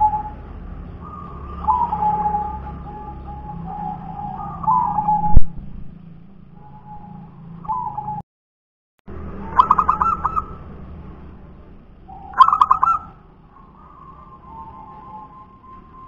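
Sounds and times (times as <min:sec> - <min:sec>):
dove cooing: 0:01.0 - 0:05.4, 0:09.6 - 0:10.6, 0:12.1 - 0:14.9.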